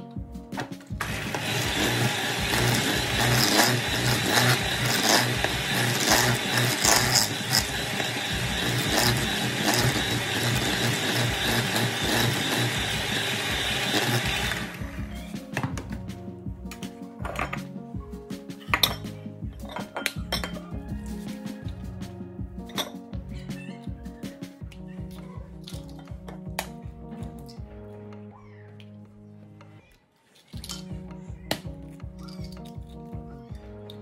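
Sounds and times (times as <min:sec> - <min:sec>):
electric hand mixer running: 0:01.0 - 0:15.4.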